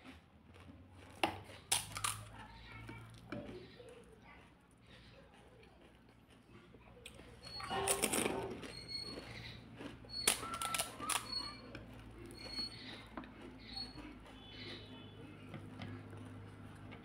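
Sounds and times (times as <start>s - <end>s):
crispy shells crunching: 0.0s - 2.3s, 7.4s - 14.8s.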